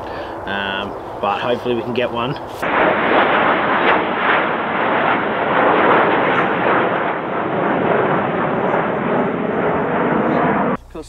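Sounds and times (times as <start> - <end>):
jet flying over: 0.0 - 11.0.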